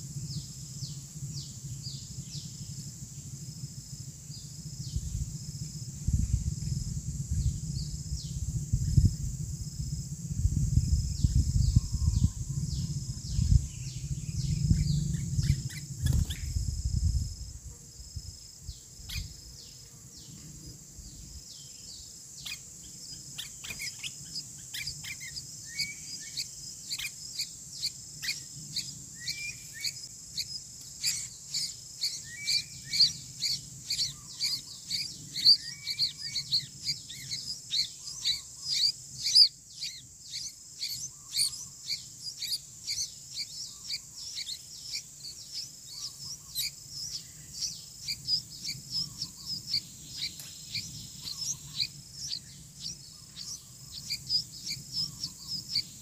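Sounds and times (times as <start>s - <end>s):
high insect drone: 0.0s - 56.0s
bird nestlings chirping: 11.6s - 16.6s, 23.3s - 56.0s.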